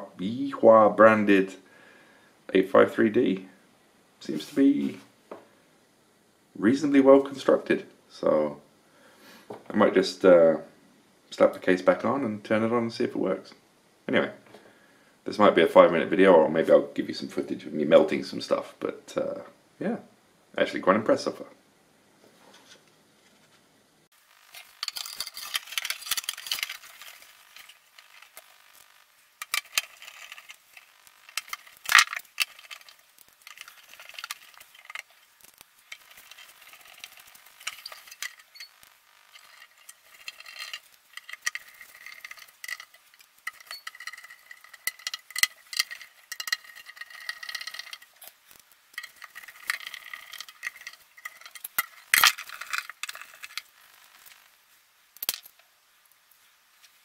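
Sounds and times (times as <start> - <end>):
metal cover scraping: 24.4 - 54.4.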